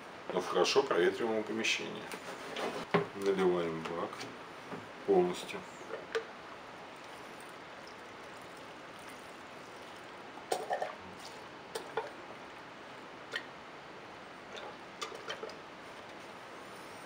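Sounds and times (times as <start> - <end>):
bottle gurgling: 5.8 - 13.5, 14.3 - 15.5.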